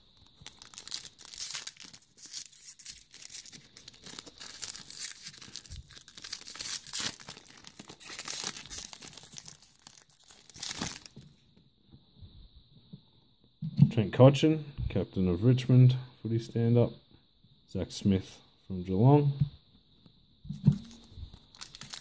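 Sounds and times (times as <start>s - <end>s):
foil wrapper tearing and crinkling: 0.0s - 11.3s, 20.8s - 22.0s.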